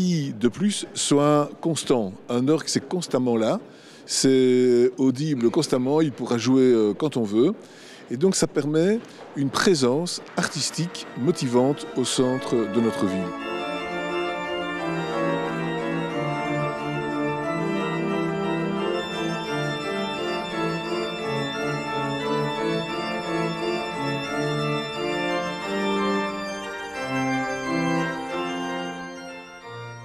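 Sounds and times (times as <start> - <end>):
organ playing slow chords: 10.2 - 30.0.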